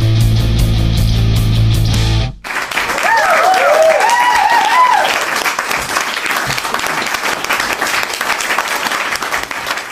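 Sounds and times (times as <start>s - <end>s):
crowd applauding: 2.4s - 9.9s.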